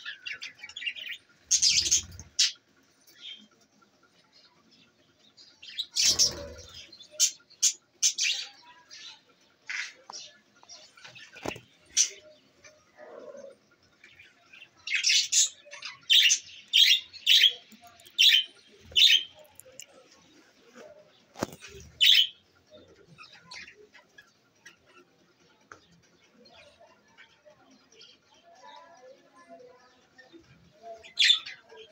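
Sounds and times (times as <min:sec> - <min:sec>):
budgerigars chirping and chattering: 0:00.0 - 0:31.9
loud bird calls: 0:05.6 - 0:10.1.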